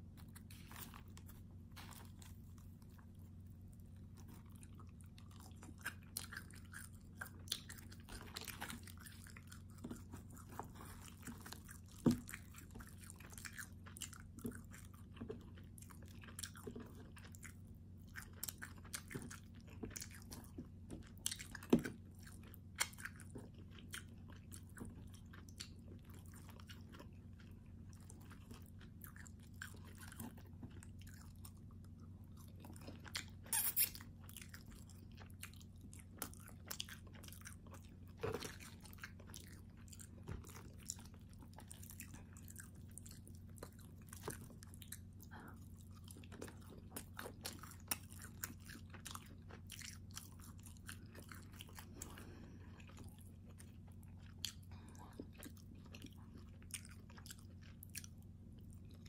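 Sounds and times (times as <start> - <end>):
crust crackling and squishing: 0.0 - 31.9
low steady hum: 0.0 - 59.0.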